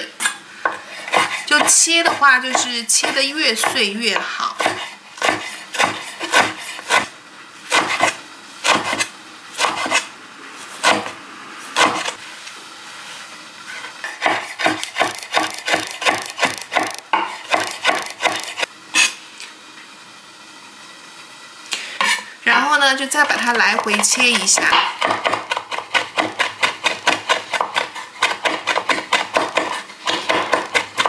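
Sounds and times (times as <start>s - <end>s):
knife chopping on wooden board: 0.6s - 7.1s, 7.7s - 10.0s, 11.8s - 12.2s, 14.2s - 18.7s, 23.7s - 31.0s.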